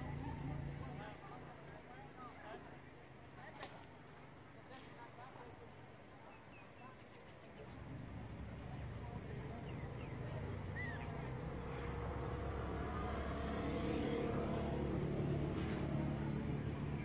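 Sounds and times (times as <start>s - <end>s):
vehicle engine running: 7.7s - 17.0s.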